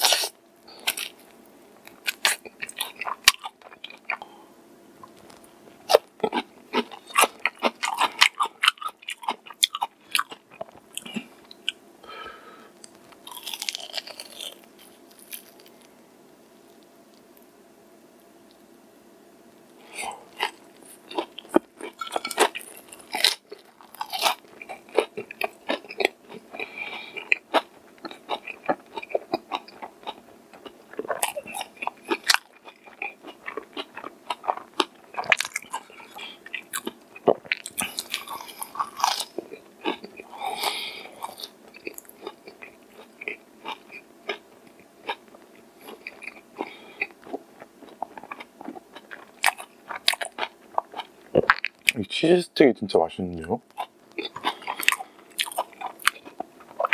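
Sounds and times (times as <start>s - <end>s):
crunching fried chicken: 0.0s - 4.4s, 5.0s - 16.0s, 19.8s - 52.0s, 53.4s - 56.9s
chewing: 5.0s - 11.8s, 12.8s - 15.8s, 19.8s - 52.0s, 53.7s - 56.9s.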